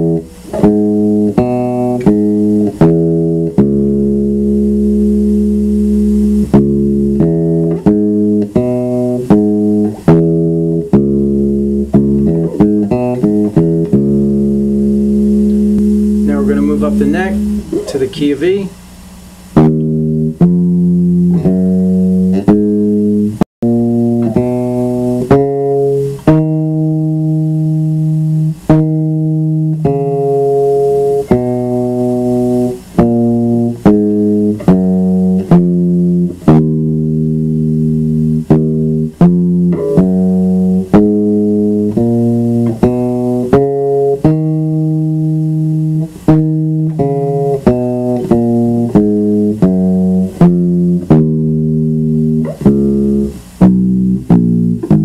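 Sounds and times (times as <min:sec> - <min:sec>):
electric bass guitar notes: 0:00.0 - 0:55.0.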